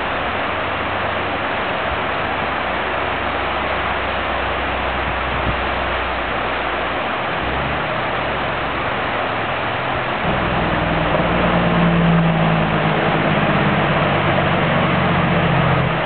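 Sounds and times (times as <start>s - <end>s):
low diesel engine drone: 0.0s - 16.0s
river rapids rushing over rocks: 0.0s - 16.0s.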